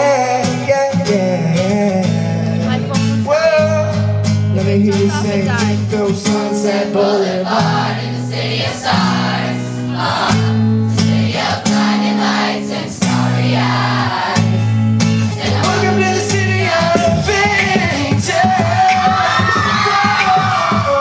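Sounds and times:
strummed acoustic guitar: 0.0 - 21.0
crowd singing in unison: 5.0 - 21.0.

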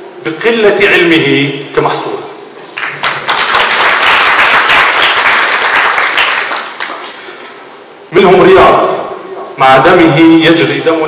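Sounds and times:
audience applauding: 2.8 - 7.1.

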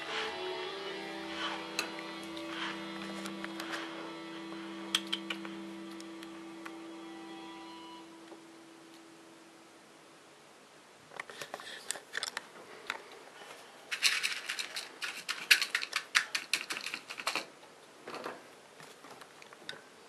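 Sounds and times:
claws rattling cage bars: 13.9 - 17.5.

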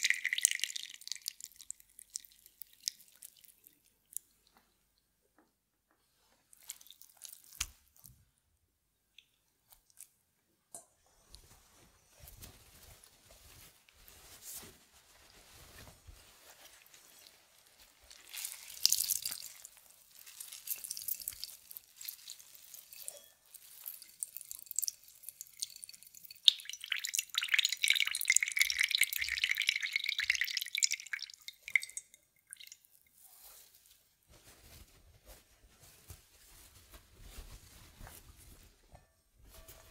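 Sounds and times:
juice dripping into a bowl: 0.0 - 4.7, 6.5 - 8.0, 18.0 - 33.2
cloth rustling and squelching: 6.0 - 8.4, 11.0 - 27.0, 32.4 - 39.9.

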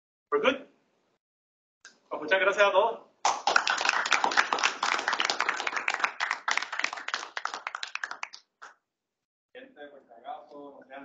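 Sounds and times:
small audience applauding: 3.2 - 8.8.

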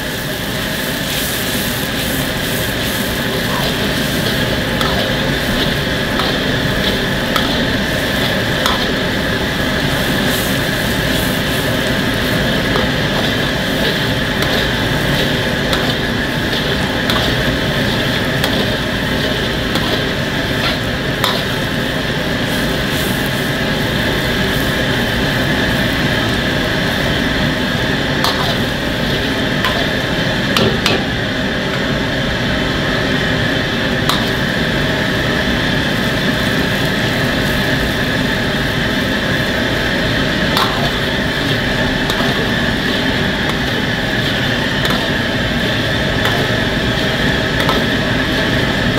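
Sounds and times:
gas burner roar and sizzling: 0.0 - 48.9
metal ladle scraping a wok: 1.3 - 23.2.

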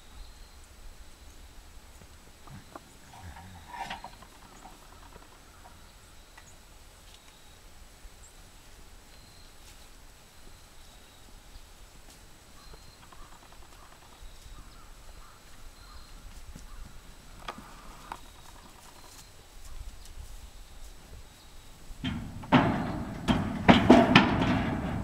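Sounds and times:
cattle shuffling and stepping: 2.0 - 5.8, 16.2 - 21.3, 22.0 - 25.0
loud knock: 22.1 - 25.0.

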